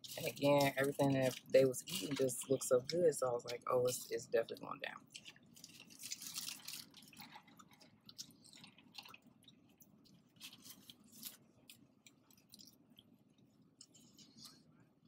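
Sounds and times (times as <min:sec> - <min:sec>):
crisp crackling: 0:00.0 - 0:14.6
person chewing: 0:05.0 - 0:14.7.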